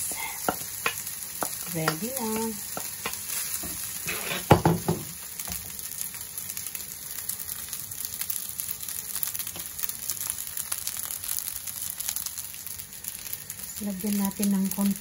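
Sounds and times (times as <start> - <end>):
rice sizzling in a pan: 0.0 - 15.0
wooden spoon knocking a pan: 0.4 - 3.8, 4.4 - 5.6.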